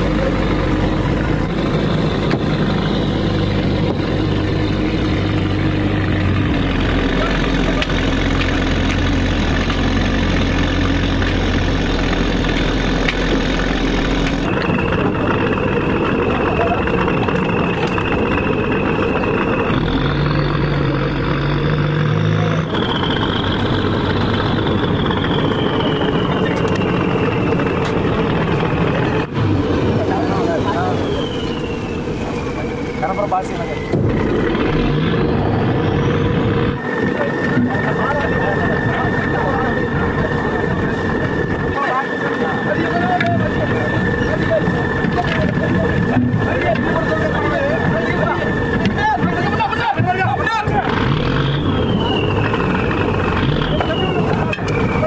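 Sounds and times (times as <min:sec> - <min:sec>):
boat engine running: 0:00.0 - 0:55.0
water rushing: 0:00.0 - 0:55.0
wind: 0:00.0 - 0:55.0
thin high whine: 0:22.4 - 0:55.0.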